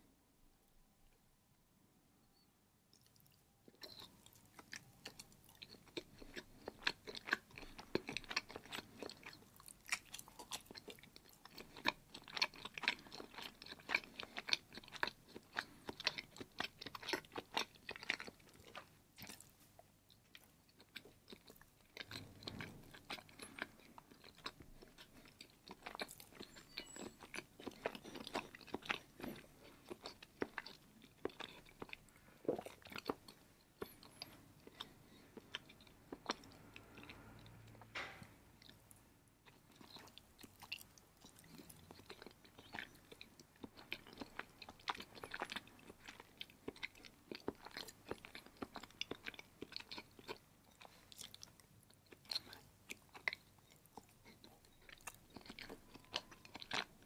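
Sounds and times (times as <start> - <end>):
mouth chewing clicks and smacks: 2.9 - 37.9, 38.6 - 57.0.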